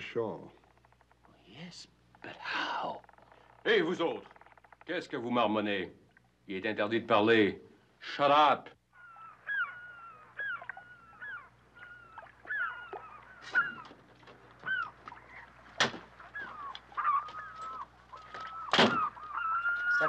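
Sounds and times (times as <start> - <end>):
flock of birds calling: 8.9 - 20.0.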